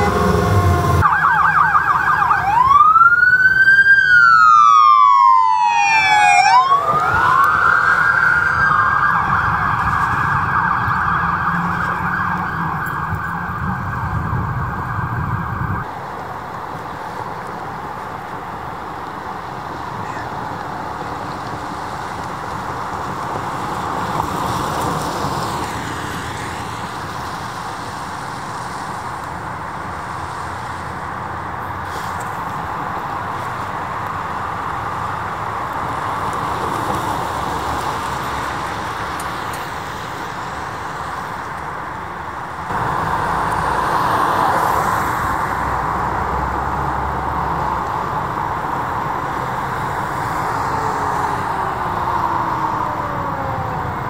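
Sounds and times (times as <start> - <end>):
low vehicle rumble: 0.0 - 5.4
emergency siren wailing: 0.0 - 16.0, 42.7 - 54.0.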